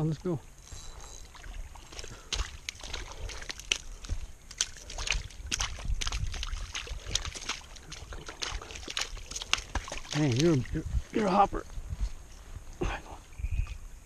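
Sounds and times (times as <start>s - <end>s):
footsteps crunching on gravel: 0.6s - 12.9s
fish flopping on wet gravel: 1.2s - 10.7s.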